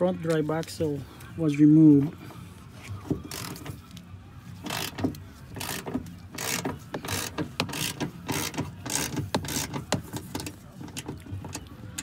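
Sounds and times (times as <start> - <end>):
socket ratchet clicking: 4.7 - 10.5.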